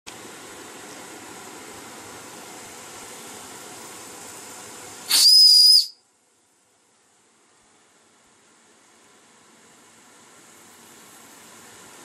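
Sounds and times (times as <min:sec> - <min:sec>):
steam boiler hissing: 0:01.3 - 0:05.9
shrill steam whistle blast: 0:05.1 - 0:06.0.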